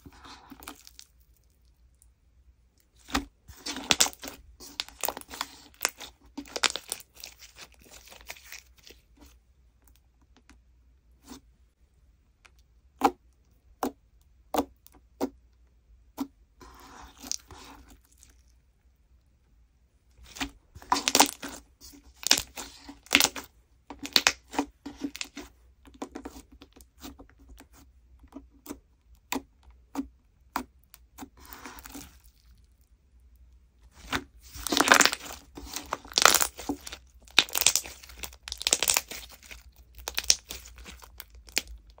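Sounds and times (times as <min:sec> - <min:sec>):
slime squelching: 0:00.0 - 0:09.4, 0:16.1 - 0:18.7, 0:20.1 - 0:32.9, 0:33.8 - 0:42.0.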